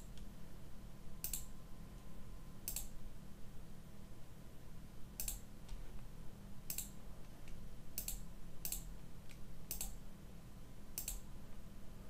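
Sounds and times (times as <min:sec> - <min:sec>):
low electrical hum: 0:00.0 - 0:12.0
computer mouse clicks: 0:01.2 - 0:01.5, 0:02.6 - 0:03.0, 0:05.2 - 0:05.8, 0:06.7 - 0:10.0, 0:11.0 - 0:11.3.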